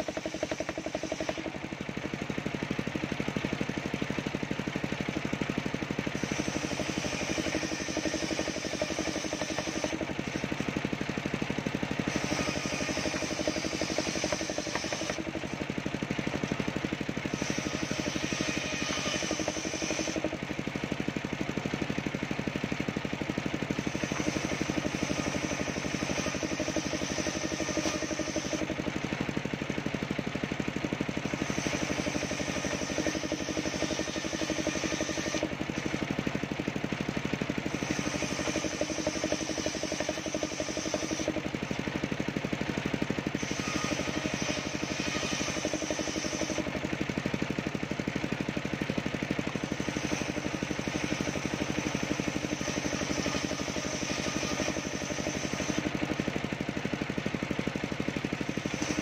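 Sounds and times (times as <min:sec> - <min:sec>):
circular saw blade ripping wood: 0:00.0 - 0:01.9, 0:05.8 - 0:21.8, 0:23.7 - 0:29.0, 0:31.2 - 0:36.1, 0:37.6 - 0:42.0, 0:43.3 - 0:47.0, 0:49.6 - 0:56.4
high-pitched cutting sound: 0:12.1 - 0:15.3, 0:17.3 - 0:20.3.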